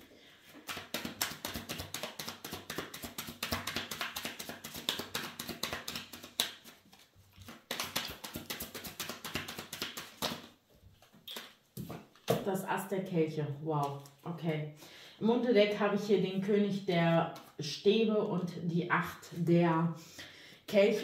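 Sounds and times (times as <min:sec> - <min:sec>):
cards being shuffled: 0:00.4 - 0:12.4, 0:13.8 - 0:14.3, 0:17.3 - 0:17.6.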